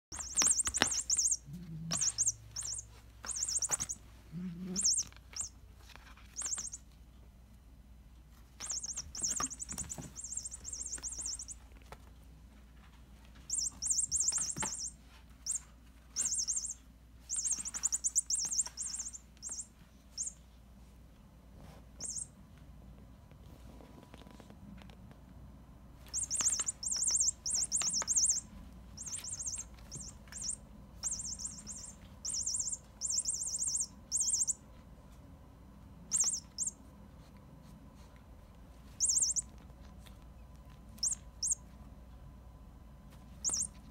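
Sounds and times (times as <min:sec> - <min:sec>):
electronic toy chirping trills: 0:00.1 - 0:04.1, 0:04.7 - 0:05.6, 0:06.3 - 0:06.8, 0:08.6 - 0:11.6, 0:13.5 - 0:20.4, 0:22.0 - 0:22.3, 0:26.1 - 0:34.6, 0:36.1 - 0:36.8, 0:39.0 - 0:39.5, 0:41.0 - 0:41.6, 0:43.4 - 0:43.9.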